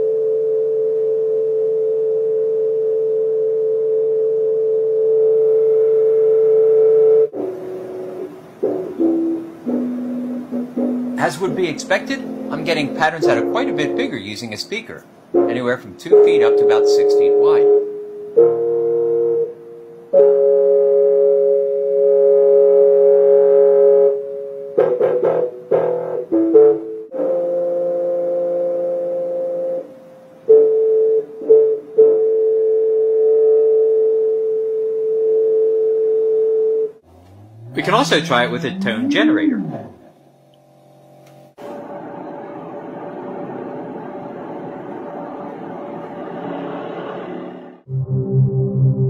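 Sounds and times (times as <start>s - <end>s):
electric keyboard notes: 0.0s - 49.0s
electric piano chord: 6.6s - 29.9s.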